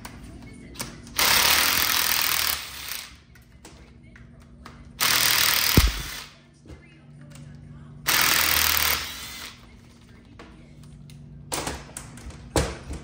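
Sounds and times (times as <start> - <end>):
power tool spinning: 5.0 - 6.2.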